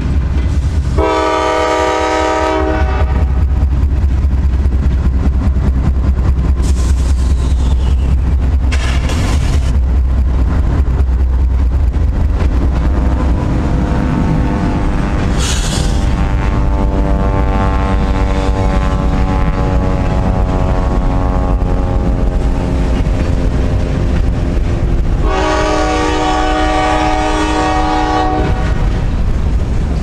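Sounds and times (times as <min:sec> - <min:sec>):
diesel locomotives rumbling: 0:00.0 - 0:30.0
locomotive horn: 0:01.0 - 0:03.5, 0:12.8 - 0:22.4, 0:25.2 - 0:28.9.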